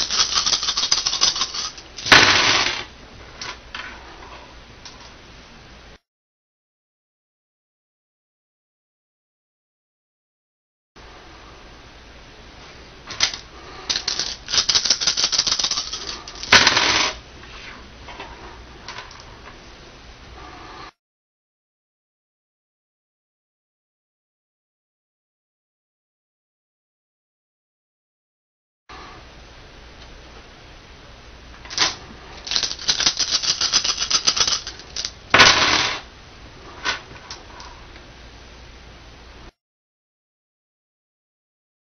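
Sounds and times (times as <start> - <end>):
dice rattling in a hand: 0.0 - 1.8, 13.2 - 17.2, 32.4 - 35.8
dice clattering on wooden table: 13.3 - 17.2.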